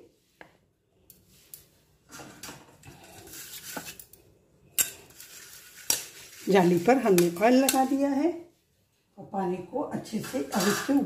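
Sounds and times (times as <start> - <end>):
containers and utensils clinking: 10.2 - 11.0.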